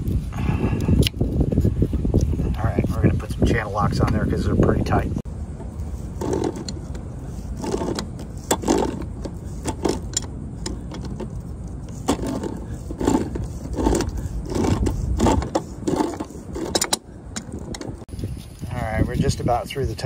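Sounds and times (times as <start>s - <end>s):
pipe cutter clicking and scraping: 5.6s - 18.1s.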